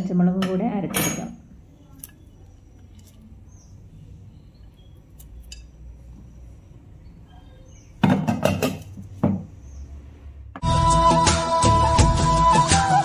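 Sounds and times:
kitchen utensils clinking: 0.4 - 3.4, 5.1 - 6.0, 8.0 - 9.4
pots and dishes clattering: 8.0 - 9.4.

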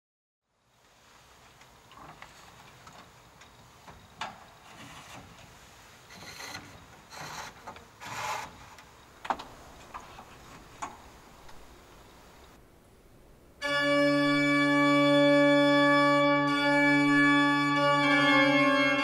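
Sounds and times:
wooden organ stops scraping and knocking: 4.6 - 11.0.

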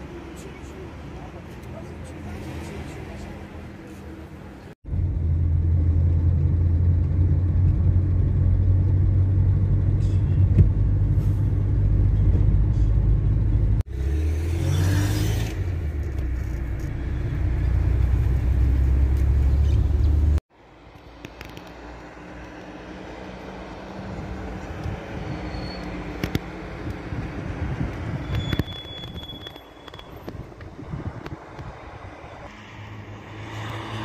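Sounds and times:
car driving rumble from inside: 4.9 - 13.9.

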